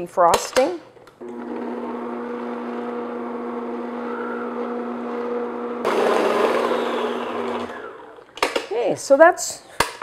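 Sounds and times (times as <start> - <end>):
stand mixer motor humming: 1.2 - 8.2.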